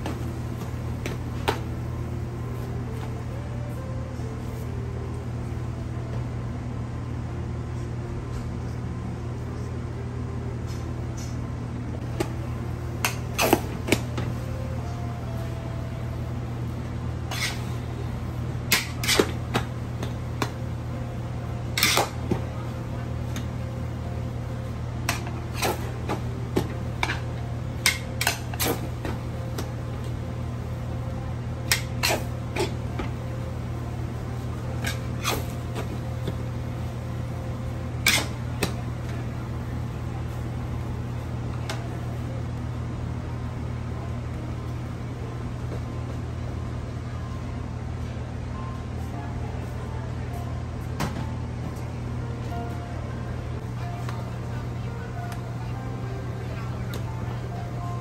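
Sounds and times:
low steady hum: 0:00.0 - 0:58.0
metal utensils scraping a wok: 0:17.3 - 0:17.7, 0:38.1 - 0:38.4.

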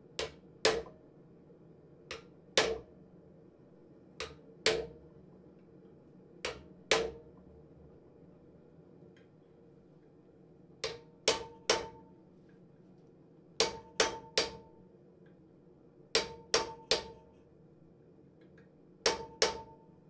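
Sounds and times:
hammer tapping chisel on metal: 0:00.2 - 0:01.0, 0:02.1 - 0:02.9, 0:04.2 - 0:04.9, 0:06.4 - 0:07.2, 0:10.8 - 0:12.0, 0:13.6 - 0:14.7, 0:16.2 - 0:17.3, 0:19.0 - 0:19.8.

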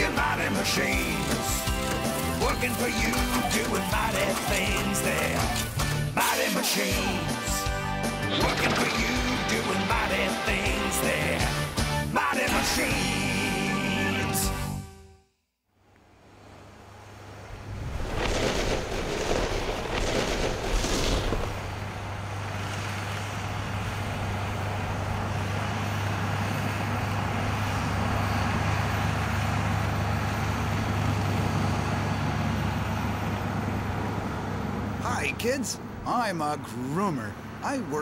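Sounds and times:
snow groomer engine humming: 0:00.0 - 0:14.8, 0:15.9 - 0:38.0
rushing noise: 0:16.3 - 0:25.1.

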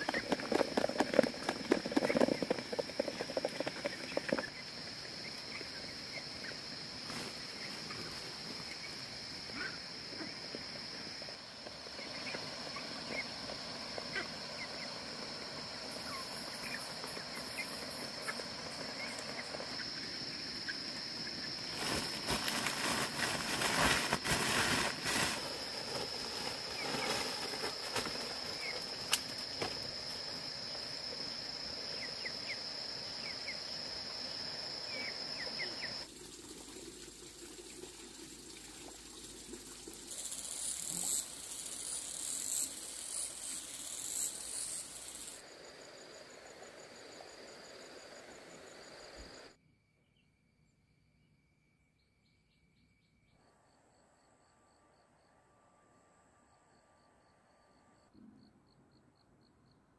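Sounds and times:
insects droning: 0:00.0 - 0:59.9
rustling noise: 0:21.6 - 0:29.1.

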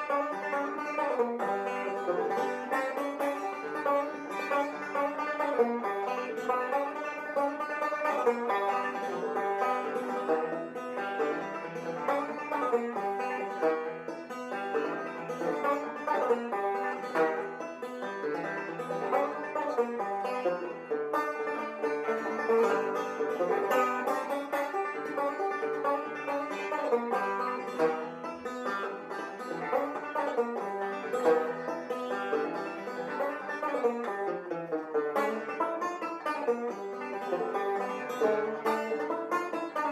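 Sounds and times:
banjo plucking bluegrass: 0:00.0 - 0:39.9.

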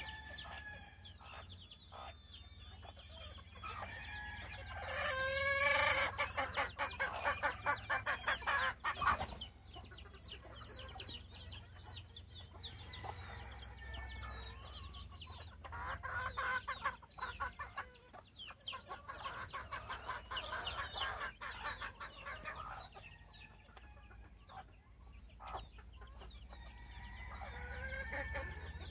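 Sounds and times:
rooster crowing: 0:00.0 - 0:01.0
chickens clucking: 0:00.0 - 0:28.9.

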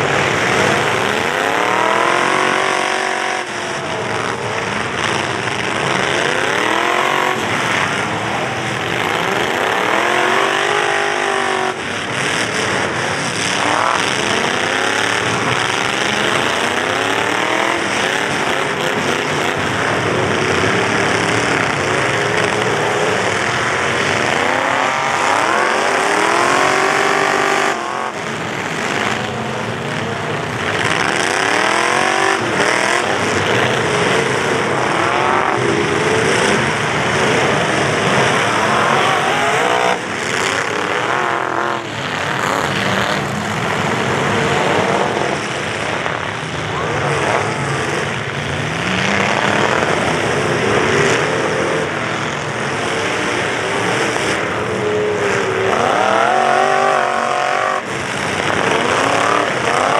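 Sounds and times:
crowd noise: 0:00.0 - 0:59.9
truck engines revving hard: 0:00.0 - 0:59.9.

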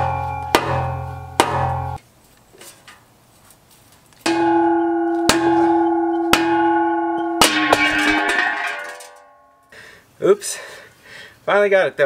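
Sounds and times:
hammer blows on ringing metal tube: 0:00.0 - 0:02.0, 0:04.3 - 0:09.4.

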